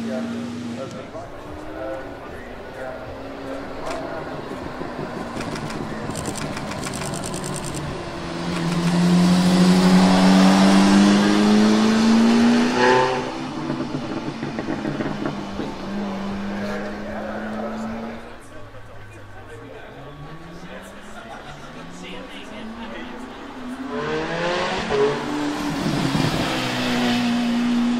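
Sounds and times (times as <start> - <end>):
sports car accelerating past: 7.9 - 18.4, 21.8 - 27.9.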